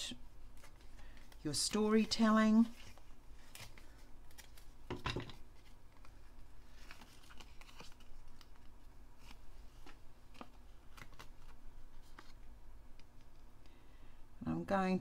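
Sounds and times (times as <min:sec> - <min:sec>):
paper rustling: 0:05.4 - 0:12.5.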